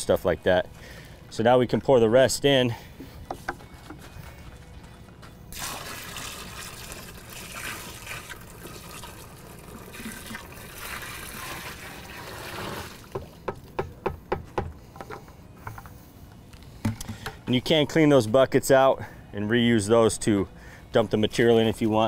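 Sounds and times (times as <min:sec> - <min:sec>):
liquid pouring into plastic can: 0:05.5 - 0:13.1.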